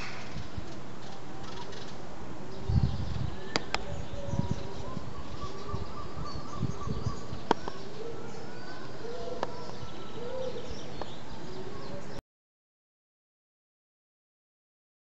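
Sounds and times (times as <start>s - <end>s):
gull and chicks calling: 2.5s - 12.2s.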